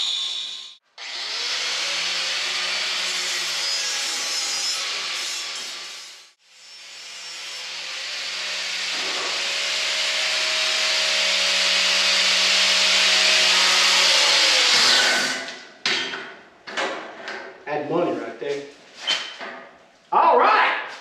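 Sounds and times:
angle grinder grinding steel: 0:00.0 - 0:15.4.

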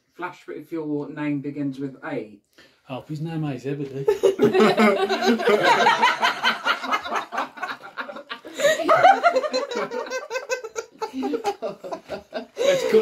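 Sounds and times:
group of people laughing: 0:04.1 - 0:13.0.

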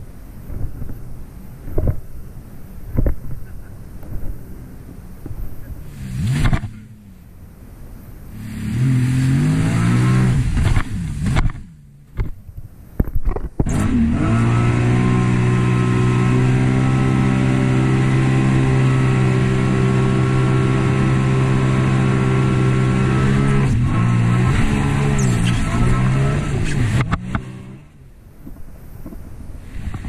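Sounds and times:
personal watercraft engine revving: 0:05.6 - 0:07.7, 0:08.3 - 0:12.4, 0:13.5 - 0:28.2.

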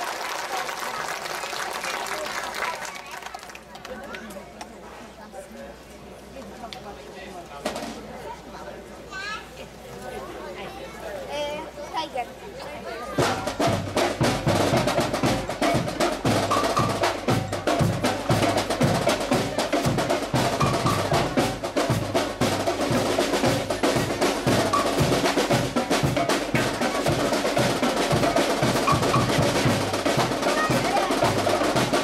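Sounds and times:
marching band playing: 0:07.6 - 0:08.0, 0:13.0 - 0:32.0
snare and bass drums: 0:07.6 - 0:08.1, 0:13.1 - 0:32.0.

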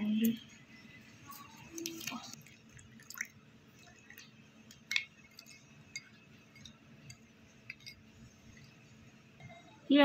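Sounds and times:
spoon clinking against glass: 0:04.9 - 0:08.1.

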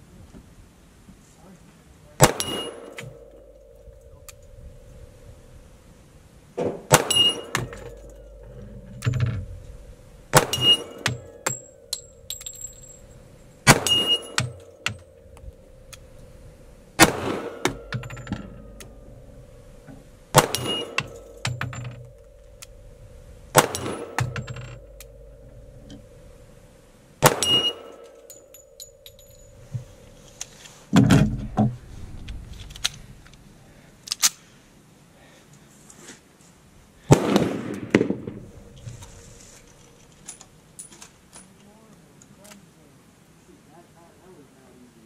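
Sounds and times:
pistol shots: 0:02.2 - 0:03.5, 0:06.8 - 0:08.5, 0:10.3 - 0:12.1, 0:13.6 - 0:15.1, 0:17.0 - 0:19.0, 0:20.3 - 0:22.2, 0:23.5 - 0:25.2, 0:27.2 - 0:28.5, 0:37.1 - 0:38.6
steel target ringing: 0:02.2 - 0:06.1, 0:06.9 - 0:30.4
dull low thump: 0:30.9 - 0:33.2.

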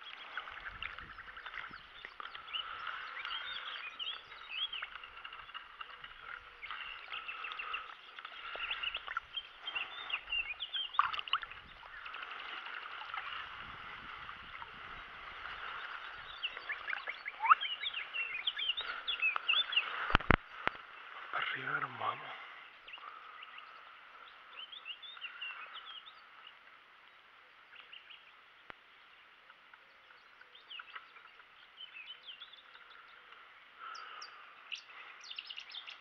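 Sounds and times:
landing net handled in water: 0:00.0 - 0:20.9
small birds chirping: 0:00.0 - 0:36.0.

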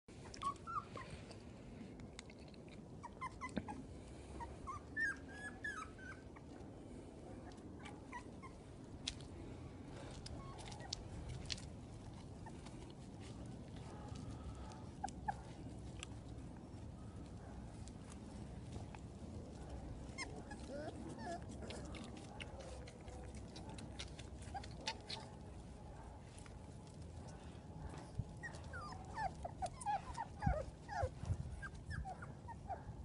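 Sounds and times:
faint low rumble: 0:00.1 - 0:33.0
puppies squeaking and whimpering: 0:00.2 - 0:01.0, 0:03.0 - 0:03.9, 0:04.6 - 0:06.5, 0:07.8 - 0:08.7, 0:19.9 - 0:22.0, 0:23.4 - 0:25.5, 0:28.4 - 0:32.8.

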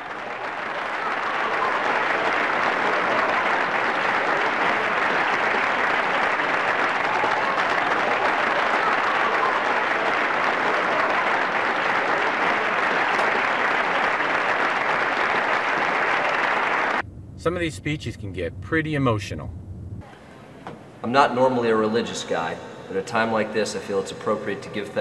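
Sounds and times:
audience applauding: 0:00.0 - 0:17.0.

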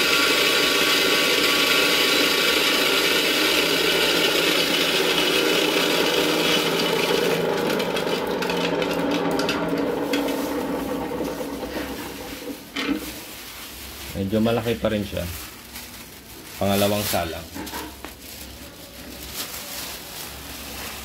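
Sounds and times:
grinder motor hum: 0:00.0 - 0:12.6.

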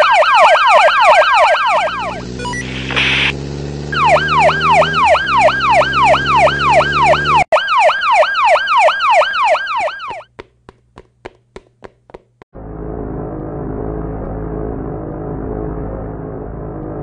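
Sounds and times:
police siren whooping: 0:00.0 - 0:10.3.

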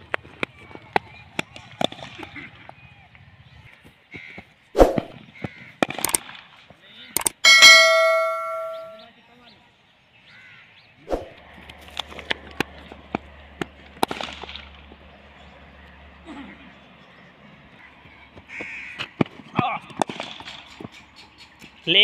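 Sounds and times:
bell ding: 0:07.3 - 0:09.0.

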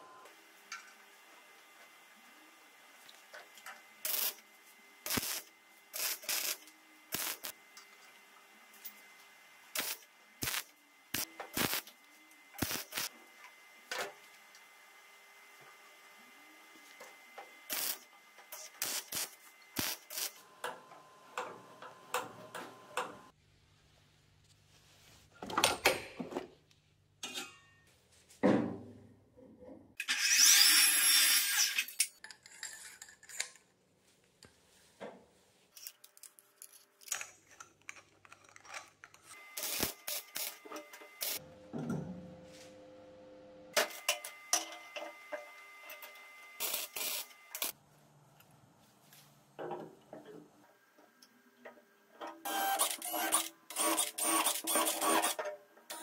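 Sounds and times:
arc welder crackling hiss: 0:04.0 - 0:04.4, 0:05.0 - 0:07.6, 0:09.6 - 0:13.2, 0:17.6 - 0:20.4, 0:39.3 - 0:41.4, 0:46.6 - 0:47.8.

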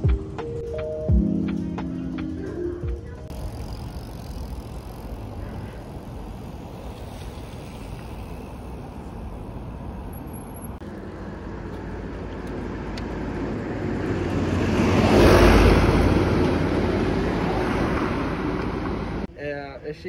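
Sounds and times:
truck driving past: 0:12.7 - 0:19.3.

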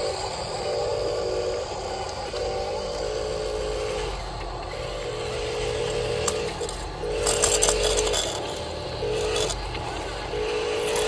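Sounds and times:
toy electric motor whining: 0:00.0 - 0:11.0
rattling and clicking: 0:04.4 - 0:11.0.

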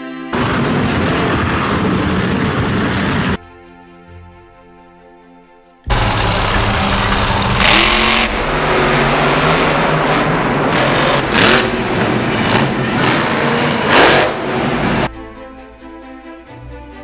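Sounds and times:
truck engines revving loudly: 0:05.9 - 0:15.1.

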